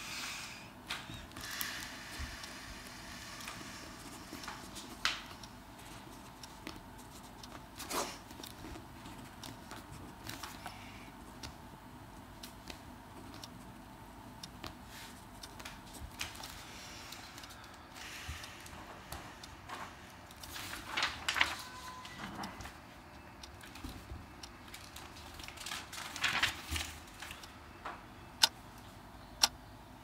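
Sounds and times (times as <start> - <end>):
page rustling: 20.5 - 21.8, 24.7 - 27.4.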